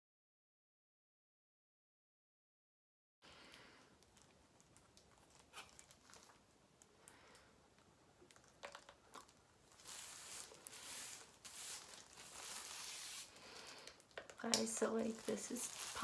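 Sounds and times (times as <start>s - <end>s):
plastic gloves crinkling: 3.3s - 16.0s
hair rustling: 8.4s - 16.0s.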